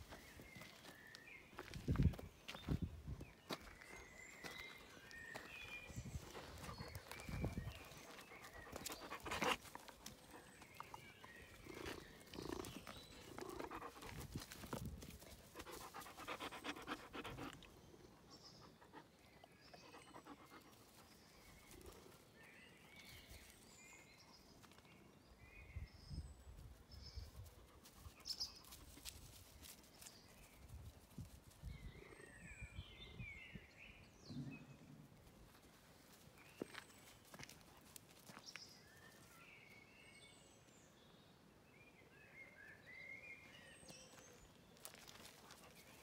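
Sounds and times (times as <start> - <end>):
puppy panting and snuffling: 6.0 - 11.1, 11.7 - 17.9.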